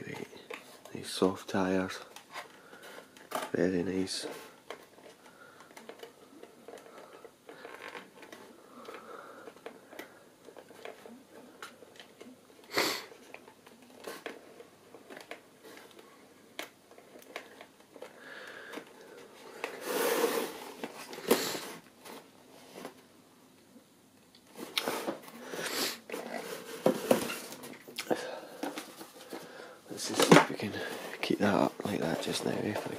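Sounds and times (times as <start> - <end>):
plastic clicks and rustles: 1.8 - 19.8
cardboard rustling: 24.5 - 28.0, 28.6 - 32.9.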